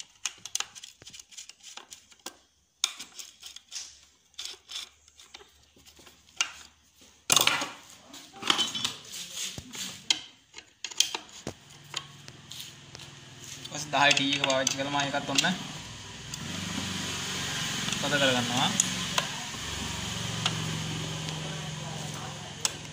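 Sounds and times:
metal tools clinking and scraping: 7.3s - 12.0s, 13.4s - 15.6s.

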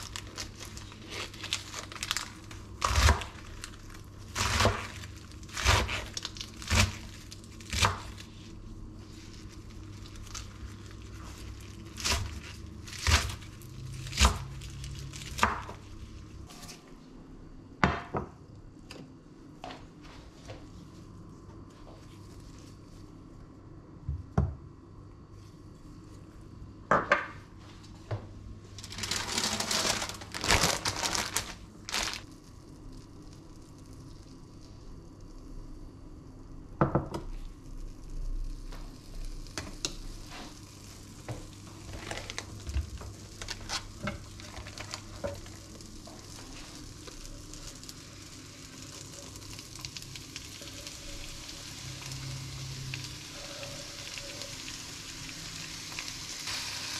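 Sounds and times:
fat sizzling in a frying pan: 37.3s - 56.9s.

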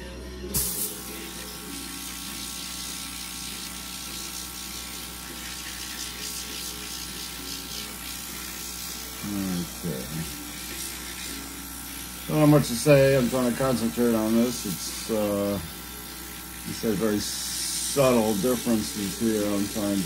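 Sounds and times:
airbrush hissing: 0.5s - 20.0s.

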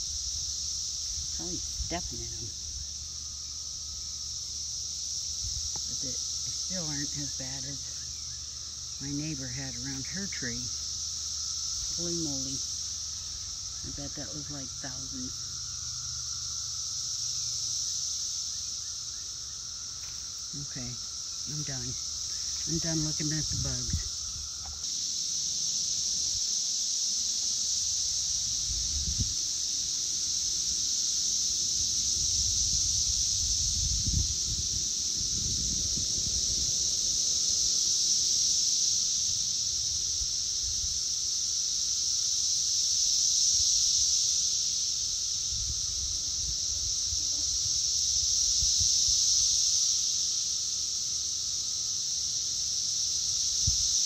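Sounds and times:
cicadas droning: 0.0s - 54.0s.

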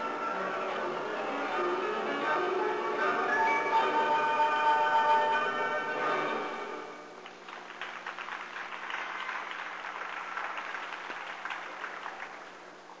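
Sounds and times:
audience applauding: 7.2s - 12.8s.

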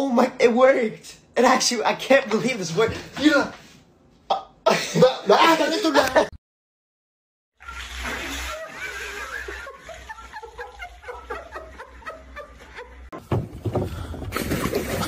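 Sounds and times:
bursts of laughter: 8.2s - 13.1s.

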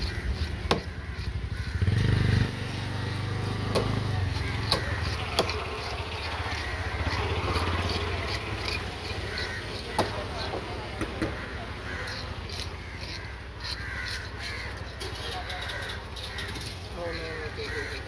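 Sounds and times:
small engine running: 0.0s - 9.6s.

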